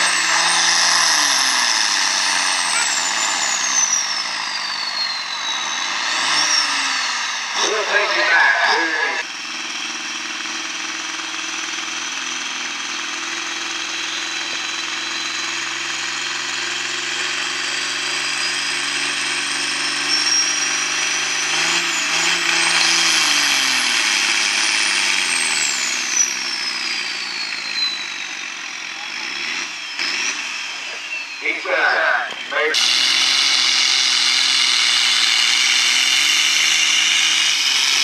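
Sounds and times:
tractor diesel engine under load: 0:00.0 - 0:38.0
high whine: 0:06.6 - 0:09.2, 0:30.7 - 0:32.8.

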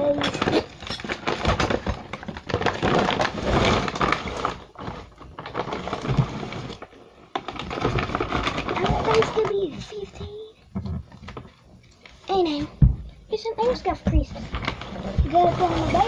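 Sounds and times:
rapid clicking and rustling: 0:00.0 - 0:10.4.

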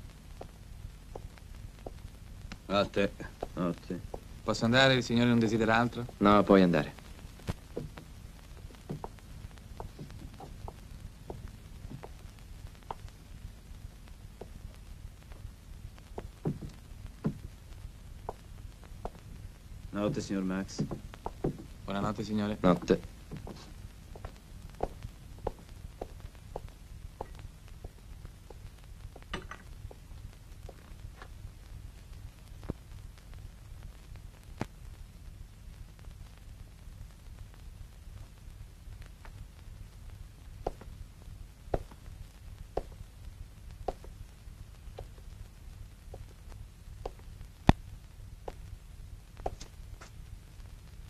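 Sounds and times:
low steady hum: 0:00.0 - 0:51.0
footsteps on hard floor: 0:01.1 - 0:02.0, 0:07.4 - 0:09.2, 0:09.8 - 0:12.2, 0:16.1 - 0:17.5, 0:20.0 - 0:28.6, 0:43.9 - 0:44.1.

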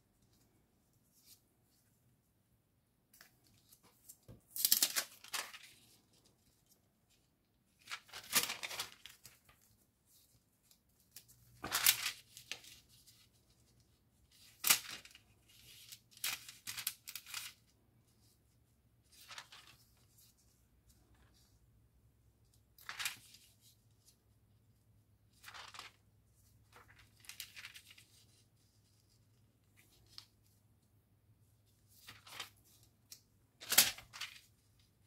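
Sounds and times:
paper rustling: 0:03.2 - 0:18.3, 0:19.0 - 0:21.6, 0:22.7 - 0:24.2, 0:25.3 - 0:30.6, 0:31.7 - 0:35.0.

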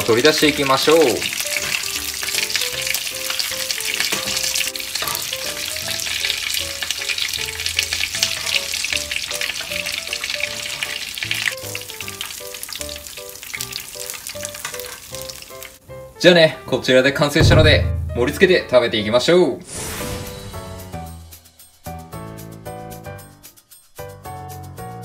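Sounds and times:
fish sizzling in a frying pan: 0:00.0 - 0:16.8.

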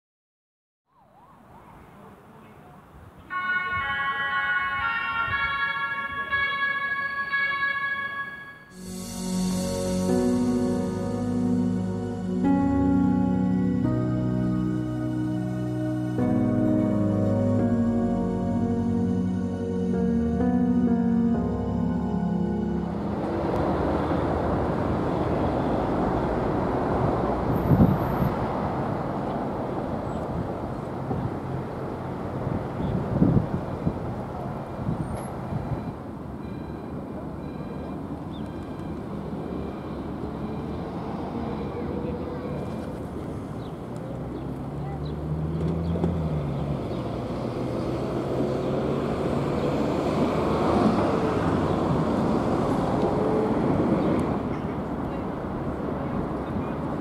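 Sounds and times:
distant traffic: 0:01.0 - 0:57.0
low wind buffet: 0:21.1 - 0:36.4
motor vehicle passing by: 0:22.3 - 0:35.0, 0:40.8 - 0:57.0
wind on microphone: 0:23.4 - 0:28.8, 0:32.4 - 0:35.9.

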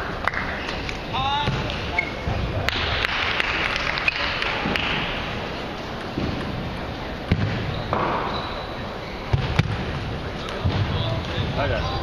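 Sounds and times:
murmur of sports hall: 0:00.0 - 0:12.0.

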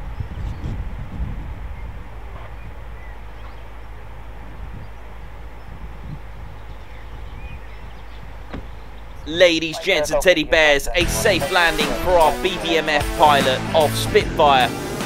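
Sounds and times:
tug engine rumbling: 0:00.8 - 0:15.0
faint bird chirps: 0:01.6 - 0:12.8.

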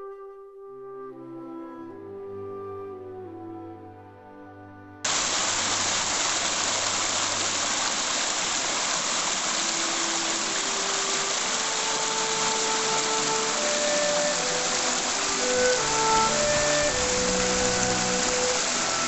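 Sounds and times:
quiet orchestral music: 0:00.0 - 0:05.1, 0:09.7 - 0:19.0
water rushing over rocks: 0:05.1 - 0:19.0.

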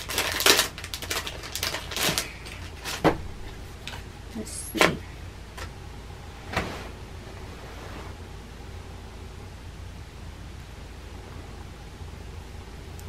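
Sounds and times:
wrapping crinkling: 0:00.0 - 0:04.1.

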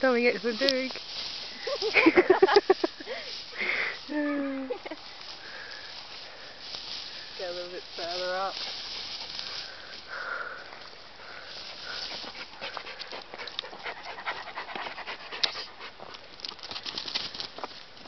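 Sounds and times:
rustling of tall grass: 0:00.0 - 0:18.0
dog panting: 0:11.6 - 0:16.1.

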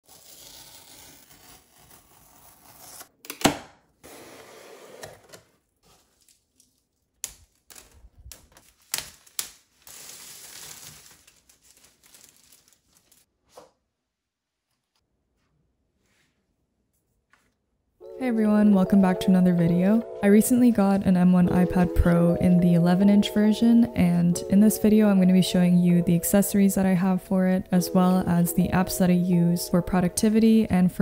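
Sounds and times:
tape peeled from cardboard box: 0:00.0 - 0:03.1, 0:08.6 - 0:13.2
plastic film crinkling and tearing: 0:00.0 - 0:03.2, 0:05.6 - 0:13.3.

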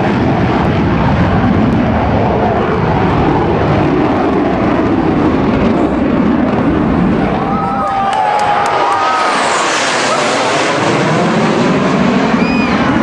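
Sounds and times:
jet engine roar overhead: 0:00.0 - 0:13.0.

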